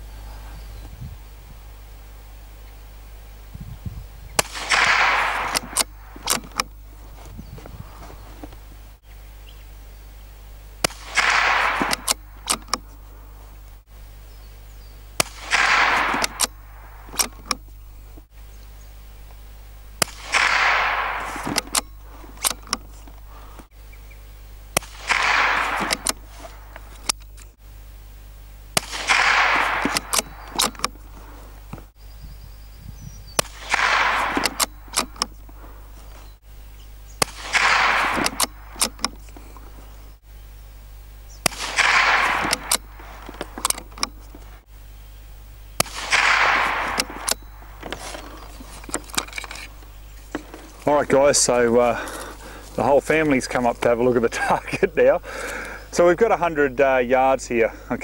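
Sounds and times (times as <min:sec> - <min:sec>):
rifle shots with echo: 0:04.4 - 0:06.8, 0:10.8 - 0:13.0, 0:15.2 - 0:17.6, 0:20.0 - 0:23.6, 0:24.8 - 0:27.1, 0:28.7 - 0:31.9, 0:33.4 - 0:36.2, 0:37.2 - 0:40.1, 0:41.4 - 0:44.6, 0:45.8 - 0:52.3
short sharp clicks: 0:04.4 - 0:06.8, 0:24.7 - 0:27.6, 0:37.2 - 0:39.9.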